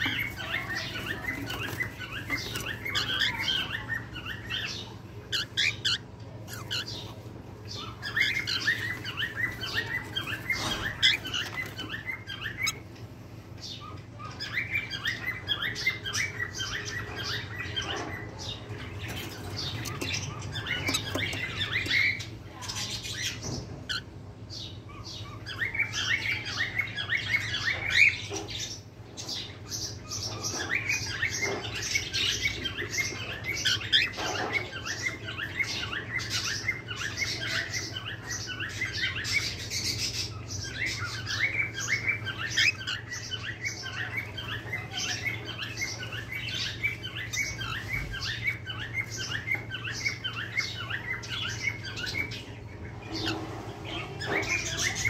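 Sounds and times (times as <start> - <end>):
chick chirping high and fast: 0.0 - 12.9.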